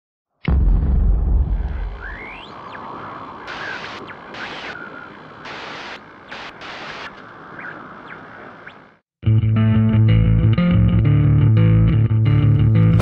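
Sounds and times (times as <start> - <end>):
digital glitch noise: 3.4 - 7.8.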